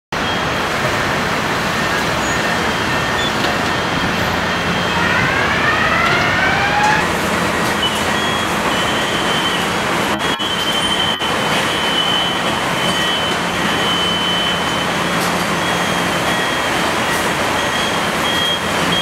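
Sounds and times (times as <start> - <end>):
assembly line machinery din: 0.8 - 17.4
rising machine whines: 2.8 - 15.0.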